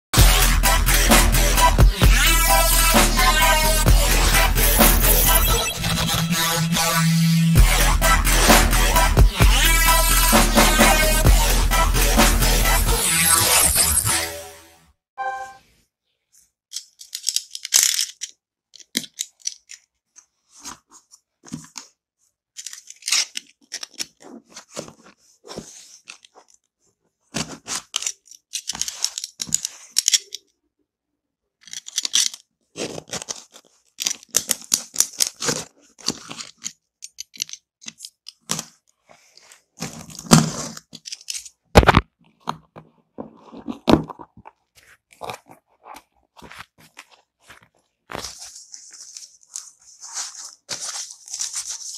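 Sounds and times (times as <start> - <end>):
cardboard and tape tearing: 32.2 - 36.4, 39.8 - 42.0, 43.2 - 51.9.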